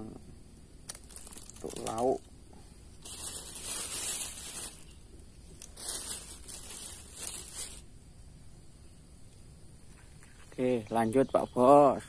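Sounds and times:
crinkling rustling handling noise: 0.9s - 7.9s.

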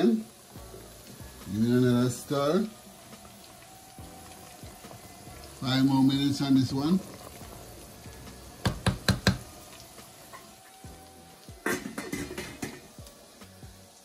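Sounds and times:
faint background music: 0.0s - 14.0s
sharp kitchen knocks: 8.6s - 9.5s
light kitchen clattering: 11.6s - 13.0s.

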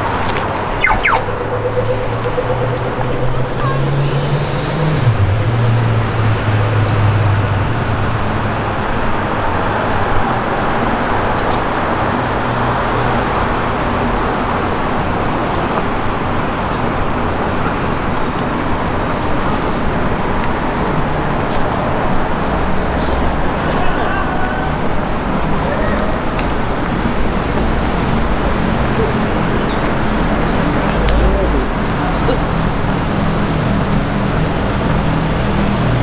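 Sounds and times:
city traffic noise: 0.0s - 36.0s
heavy engine low hum: 24.7s - 36.0s.

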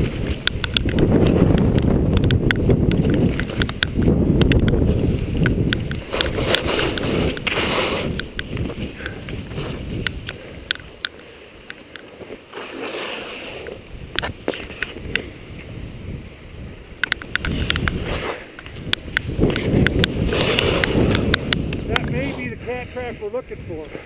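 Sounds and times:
wind rumbling on microphone: 0.0s - 11.8s, 13.4s - 24.0s
sharp clicks and ticks: 0.0s - 12.2s, 17.0s - 22.4s
skis sliding through snow: 0.0s - 24.0s.

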